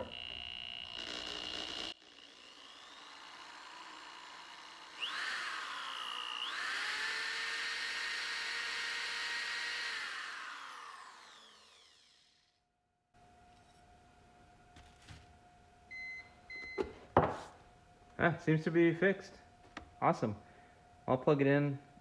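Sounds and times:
electric sander motor whining: 0:00.0 - 0:12.6.

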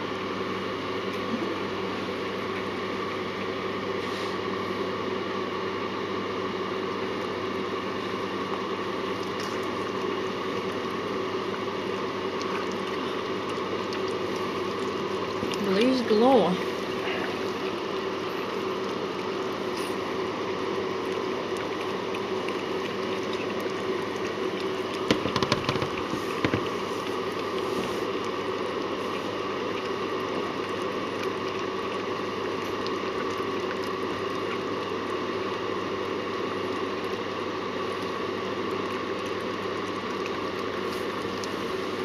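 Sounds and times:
background hum and hiss: 0:00.0 - 0:42.0
dog licking wet pup: 0:09.0 - 0:35.9, 0:36.6 - 0:42.0.

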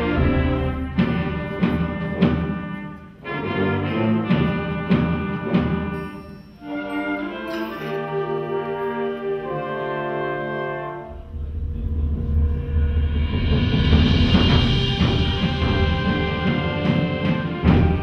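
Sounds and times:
wind band playing chords: 0:00.0 - 0:18.0.

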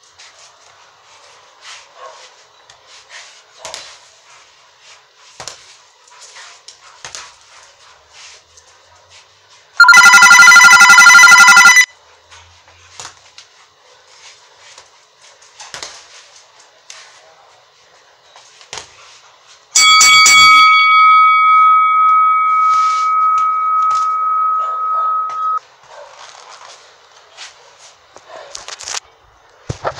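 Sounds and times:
trilling electric bell ring: 0:09.8 - 0:11.9, 0:19.8 - 0:25.6.

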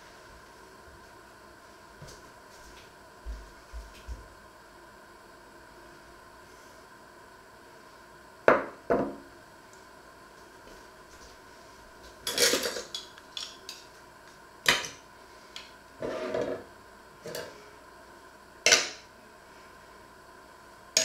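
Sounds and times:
cutlery scraping: 0:12.3 - 0:13.5.

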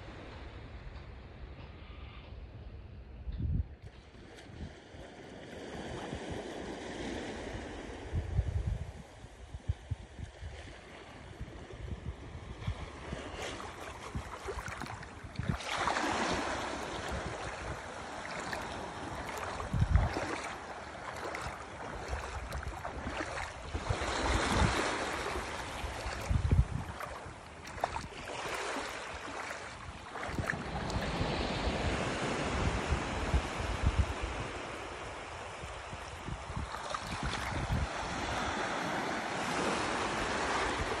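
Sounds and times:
wind buffeting microphone: 0:03.0 - 0:04.9, 0:05.7 - 0:38.7
small waves lapping: 0:10.2 - 0:41.0.

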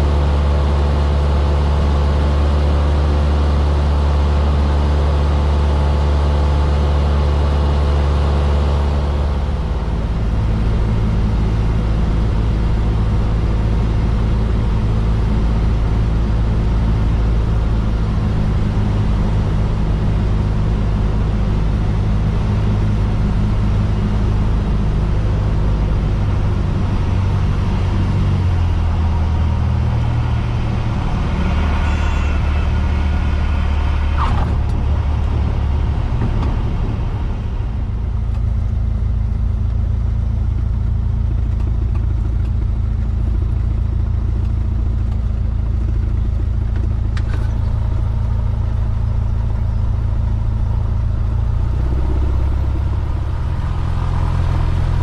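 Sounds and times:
propeller airplane engine droning: 0:00.0 - 0:55.0.

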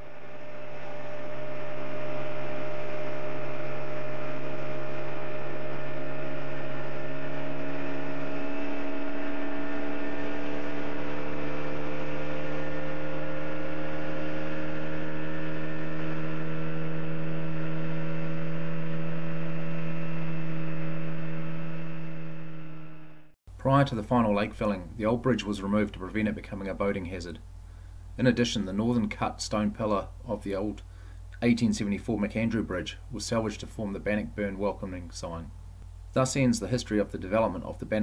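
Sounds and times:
outboard engine running: 0:00.0 - 0:23.2.

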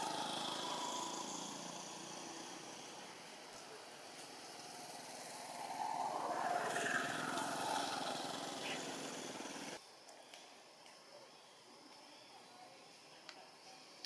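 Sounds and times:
motor vehicle passing: 0:00.0 - 0:09.8.

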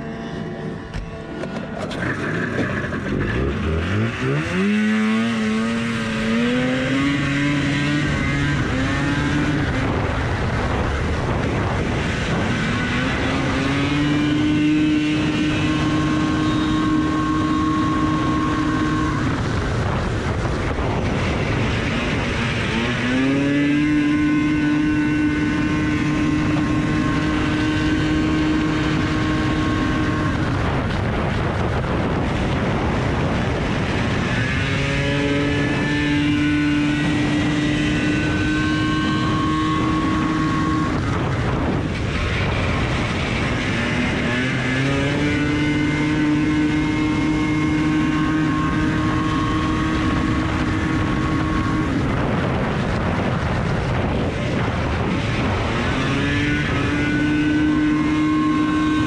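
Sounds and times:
snowmobile engine revving: 0:00.0 - 0:59.0
track and wind noise: 0:00.0 - 0:59.0.

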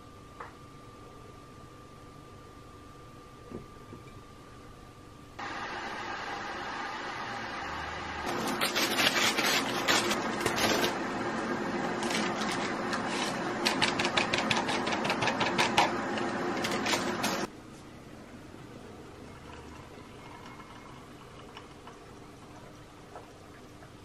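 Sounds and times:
mechanical hum: 0:00.0 - 0:24.0
paper sachet crinkling: 0:08.3 - 0:11.0.

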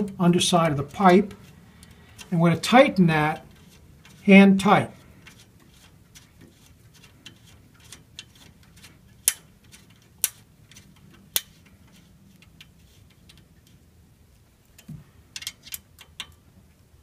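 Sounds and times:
allen wrench clicking on metal bolt: 0:09.2 - 0:12.7, 0:14.8 - 0:16.4.

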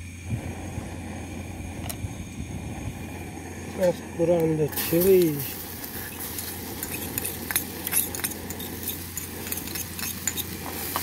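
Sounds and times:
gas stove hissing: 0:00.0 - 0:11.0
metal spoon scraping mortar: 0:06.1 - 0:11.0.

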